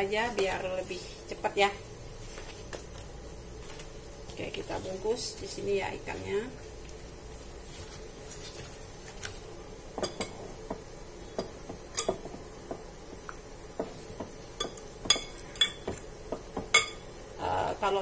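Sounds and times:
metal spoon clinking glass bowl: 14.6 - 16.0.

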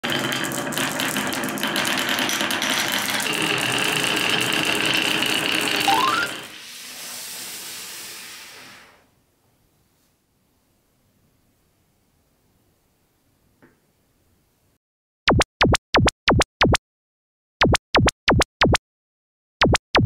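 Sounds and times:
marbles clacking on wooden tracks: 0.0 - 6.4.

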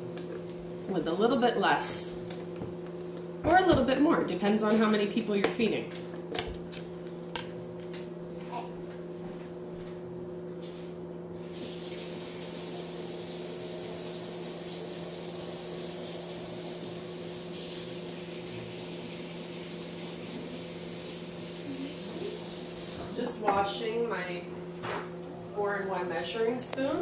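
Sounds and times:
tap water running: 11.4 - 23.8.

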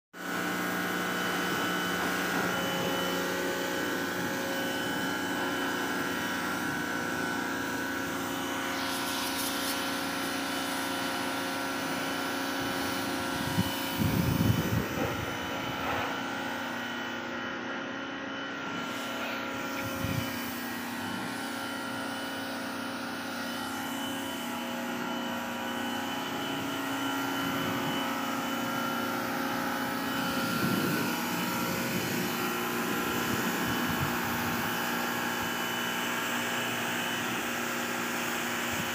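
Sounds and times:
pressure washer pump whine: 0.2 - 38.9
water spraying hiss: 8.6 - 11.4.

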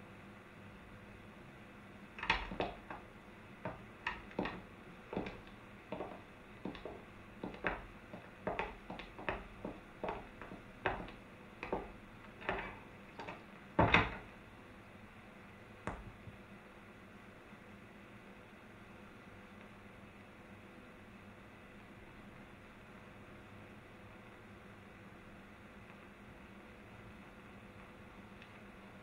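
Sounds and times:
footsteps on a hard floor: 2.2 - 14.3
heavy thump: 3.7 - 14.3.

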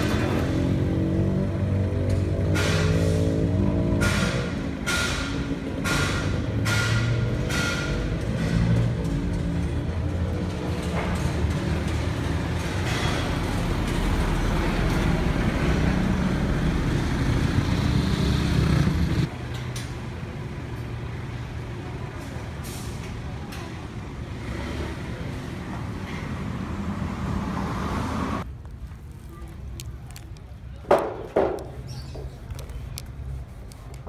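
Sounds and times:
heavy vehicle engine rumbling: 0.0 - 34.0
street traffic: 0.0 - 34.0.

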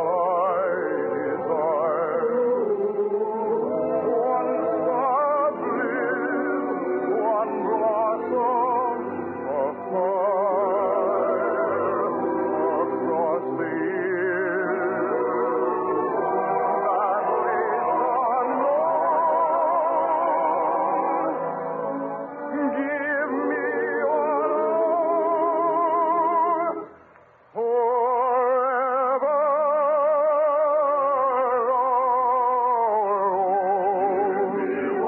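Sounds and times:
operetta singing: 0.0 - 35.0
orchestra playing: 3.5 - 26.9.

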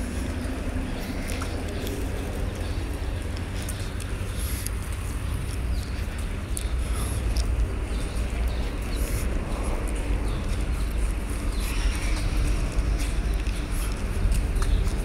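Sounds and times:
footsteps on paved path: 0.0 - 15.0
low rumble on microphone: 0.0 - 15.0
light ticks: 1.2 - 9.0.

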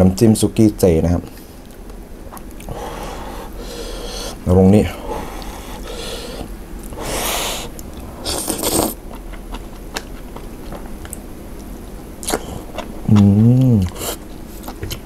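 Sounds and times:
person slurping noodles: 5.2 - 9.0.

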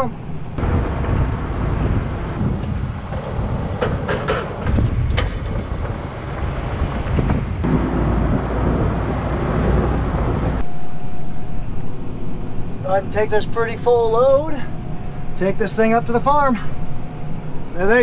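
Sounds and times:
tractor diesel engine running: 0.0 - 18.0
metal clanks and rattles: 3.1 - 6.0.

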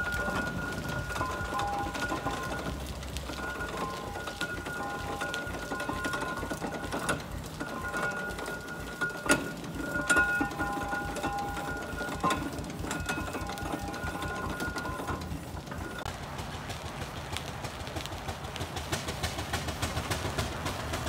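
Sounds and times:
sharp mechanical clanks: 0.0 - 16.1
steam roller running: 0.0 - 21.0.

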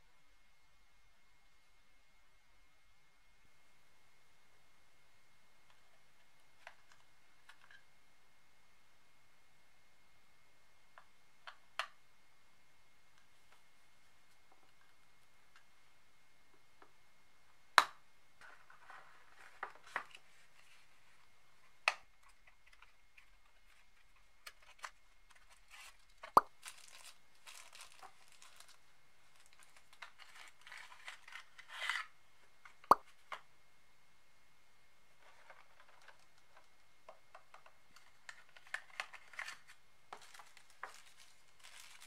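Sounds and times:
paper crinkling and rustling: 22.2 - 32.1, 37.6 - 42.0.

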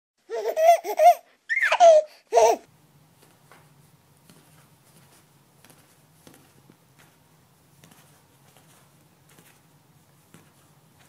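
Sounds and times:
high-pitched baby-like laughing: 0.2 - 2.7.

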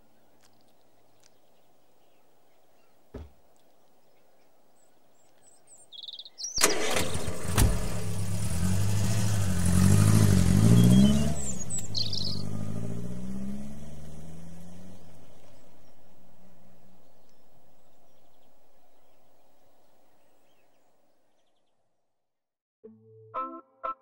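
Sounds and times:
faint bird chirps: 0.0 - 6.6, 10.7 - 12.6
car engine cranking: 6.6 - 14.9
car engine running: 6.8 - 15.6.

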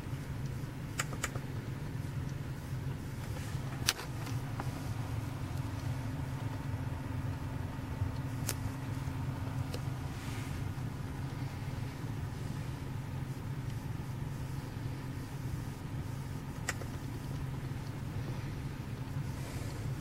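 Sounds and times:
car low hum: 0.0 - 20.0
sharp clicks: 0.4 - 2.4, 16.5 - 17.5.

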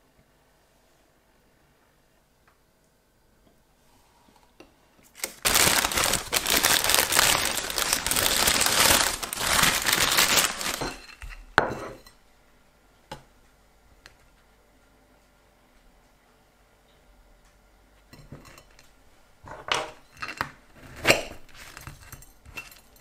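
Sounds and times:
paper bag crinkling: 5.1 - 11.1.

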